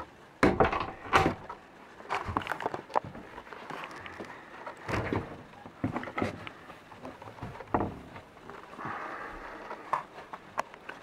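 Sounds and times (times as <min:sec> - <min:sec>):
knocks in wooden cabin: 0:00.4 - 0:01.4.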